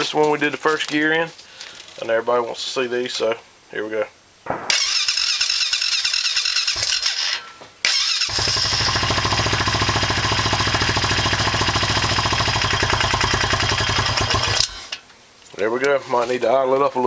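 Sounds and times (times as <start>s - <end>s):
engine idling: 4.7s - 14.9s
engine starter cranking: 4.7s - 15.0s.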